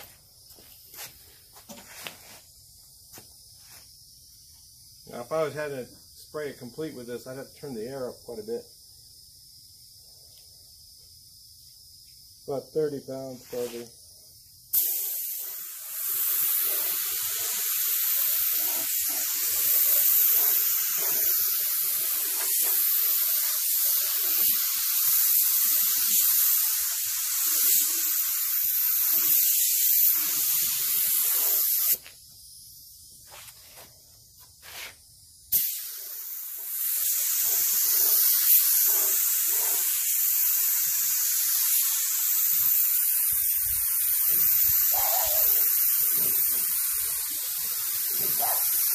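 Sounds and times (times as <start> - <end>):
paint spray gun hissing: 12.5 - 13.9, 14.7 - 33.5, 34.6 - 48.9.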